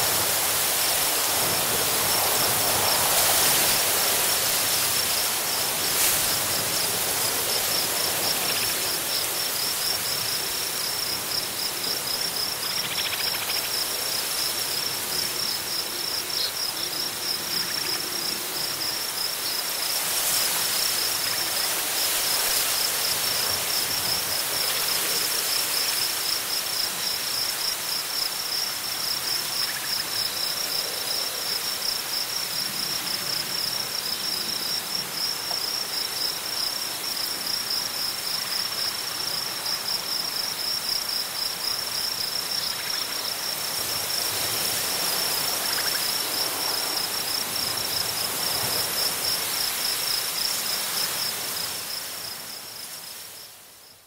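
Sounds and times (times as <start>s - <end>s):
strong wind through grass: 0.0s - 12.8s, 13.6s - 53.6s
crickets chirping: 0.0s - 54.0s.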